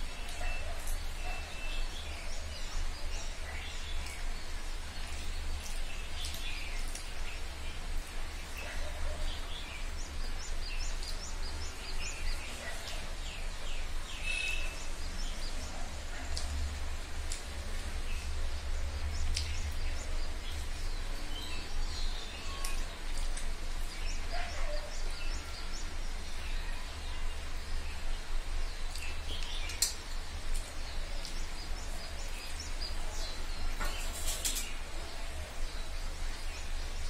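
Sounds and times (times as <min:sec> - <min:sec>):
birds chirping and twittering: 0:00.0 - 0:37.0
soft clicks of eating: 0:05.0 - 0:07.4, 0:16.2 - 0:21.5, 0:22.5 - 0:24.0, 0:28.8 - 0:34.8.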